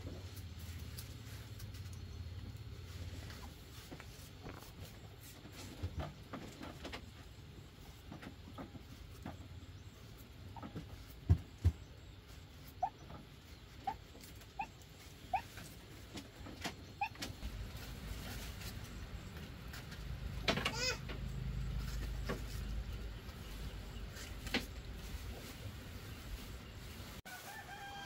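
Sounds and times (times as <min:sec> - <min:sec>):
small animal squeaking: 0:12.5 - 0:17.5.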